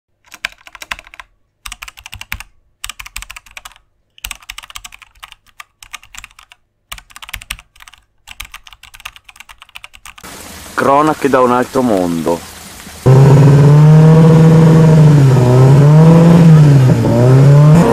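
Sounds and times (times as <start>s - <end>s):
keyboard typing clicks: 0.2s - 10.2s.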